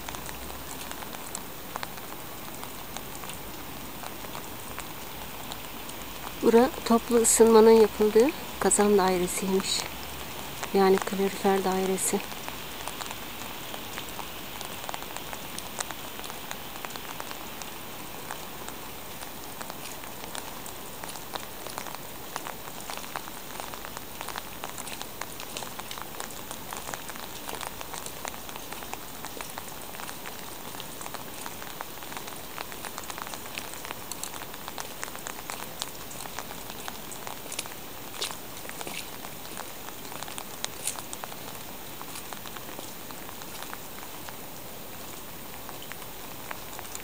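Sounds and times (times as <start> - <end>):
drops ticking nearby: 0.0 - 47.0
steady rain: 0.0 - 47.0.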